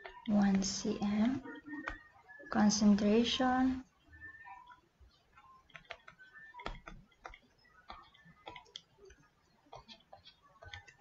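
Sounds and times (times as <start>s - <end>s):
stylus tapping on tablet: 4.6s - 11.0s.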